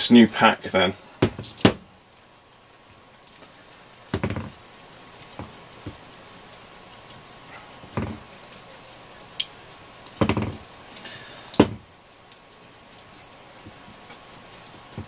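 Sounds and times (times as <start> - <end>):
objects knocking on hard surface: 1.2 - 1.8, 4.1 - 4.6, 8.0 - 8.2, 10.2 - 10.6.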